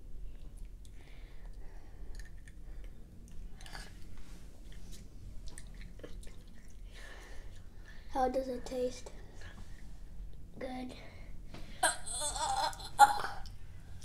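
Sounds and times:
person chewing: 4.7 - 6.8.

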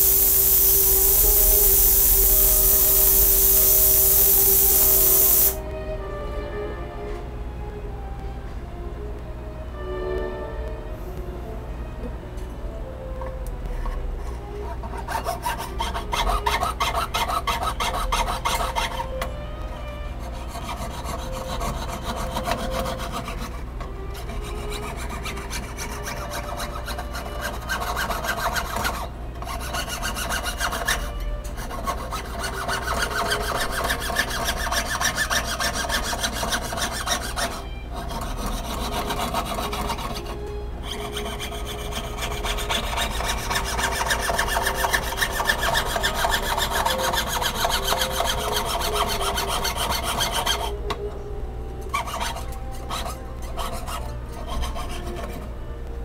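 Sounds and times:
saw rasping through sheet metal: 0.0 - 5.6, 14.8 - 19.3, 20.3 - 50.8, 51.9 - 55.4.

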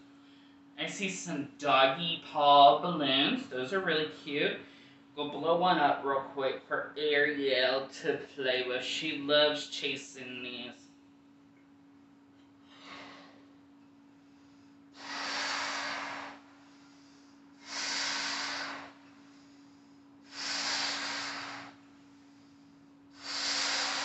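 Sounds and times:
man blowing up a balloon: 14.9 - 16.5, 17.6 - 19.0, 20.2 - 21.8, 23.1 - 24.0.

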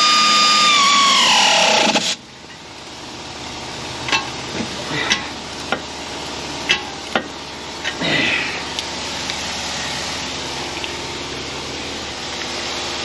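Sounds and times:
pneumatic wrench whining: 0.0 - 2.2.

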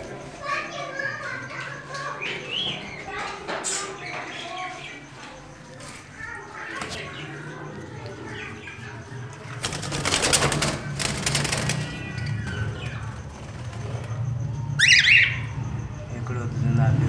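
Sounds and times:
bird wings flapping: 9.5 - 14.2
bird chirping sharply: 14.7 - 15.7.

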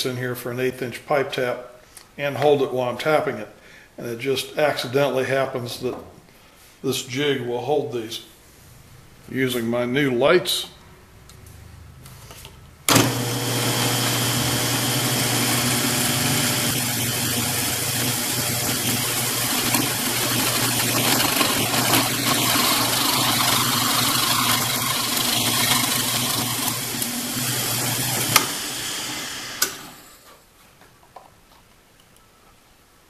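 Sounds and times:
drill press boring into wood: 12.9 - 30.1
drill press switch click: 29.6 - 29.9.

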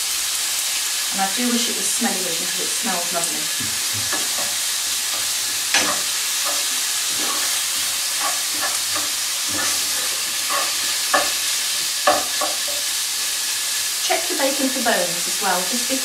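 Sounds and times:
bacon and onion sizzling in pan: 0.0 - 16.0
spoon scraping and knocking pan: 3.4 - 13.0.

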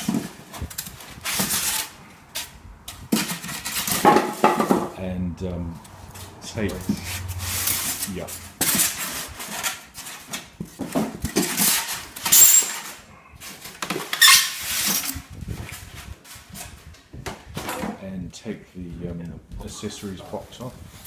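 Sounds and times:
brief high squeak: 12.3 - 12.9, 14.1 - 14.7.

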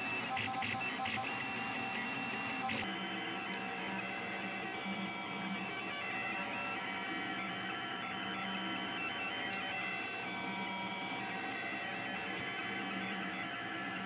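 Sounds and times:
stepper motors whining: 0.0 - 2.8.

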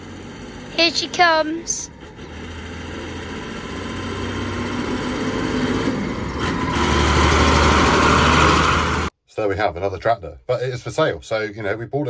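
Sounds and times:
tractor diesel engine running: 0.0 - 9.1.

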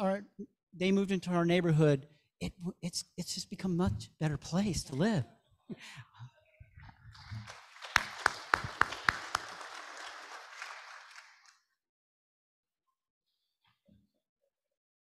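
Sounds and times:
room of people applauding: 6.8 - 11.7
loud sharp claps: 7.1 - 11.6.

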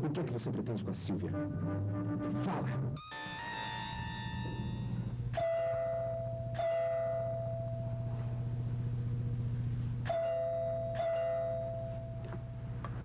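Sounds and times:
steady low hum: 0.0 - 13.0
two-tone doorbell chime: 3.0 - 8.5, 10.0 - 12.6.

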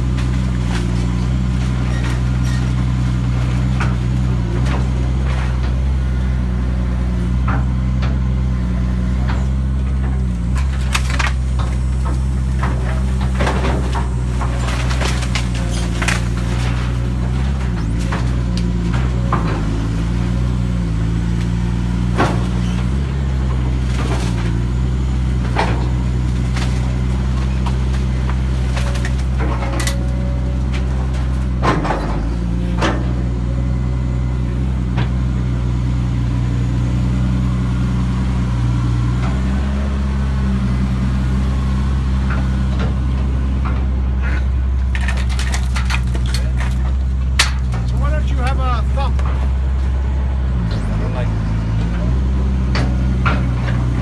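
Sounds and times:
excavator diesel engine running: 0.0 - 54.0
structure cracking and knocking: 9.9 - 19.8, 44.8 - 49.6.

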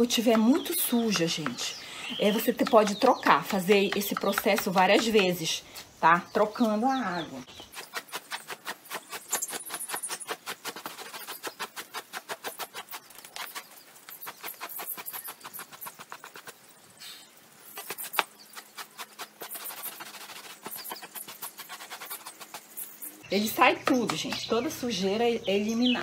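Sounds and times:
hand brush scrubbing a rug: 7.7 - 16.7, 17.7 - 23.0.

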